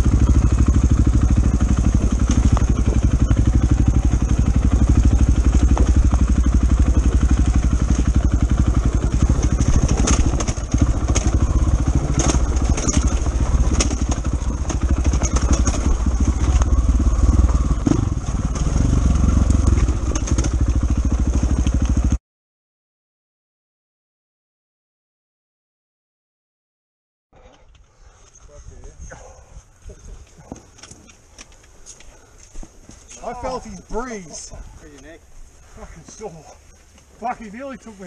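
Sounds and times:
bike knocks and rattles: 0.0s - 18.9s, 19.5s - 22.2s
dirt bike engine under throttle: 0.0s - 22.2s.

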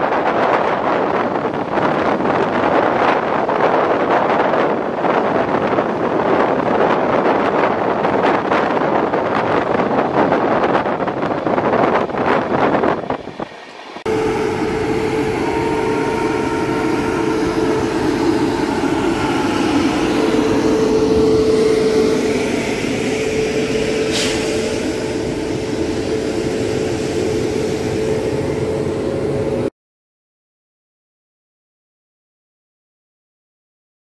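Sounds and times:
electric locomotive humming: 0.0s - 29.7s
brief hiss: 23.9s - 25.0s.

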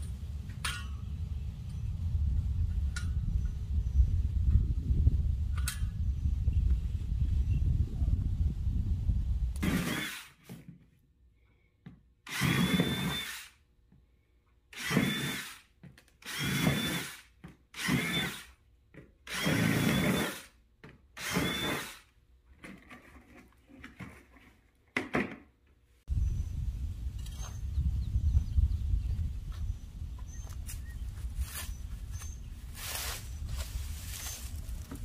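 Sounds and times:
cordless drill bursts: 9.6s - 10.5s, 12.2s - 13.6s, 14.7s - 18.6s, 19.3s - 20.6s, 21.2s - 22.1s.

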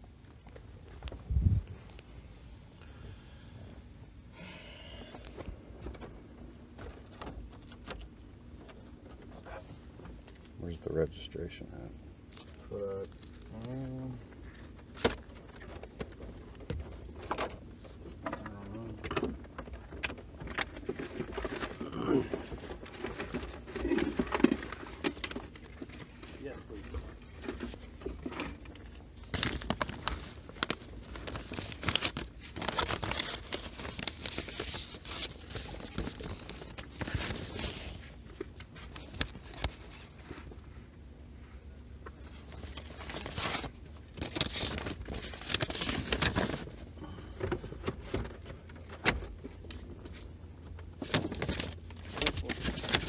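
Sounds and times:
low steady hum: 0.0s - 53.0s
paper rustling and crinkling: 12.3s - 40.8s, 42.0s - 50.3s, 50.9s - 53.0s.

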